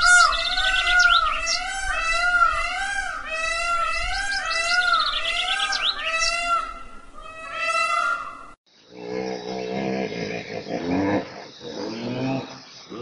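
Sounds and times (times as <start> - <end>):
bird chirps and trills: 0.0 - 8.5
bird warbling call: 0.0 - 8.6.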